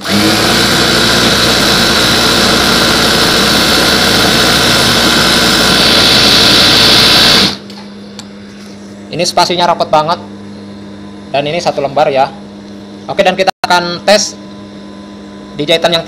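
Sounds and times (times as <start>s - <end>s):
sewing machine whirring: 0.0s - 7.6s.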